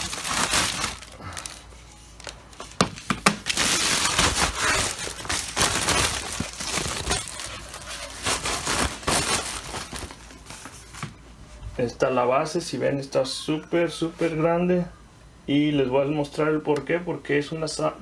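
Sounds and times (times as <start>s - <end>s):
packaging rustling and crinkling: 0.0s - 11.2s.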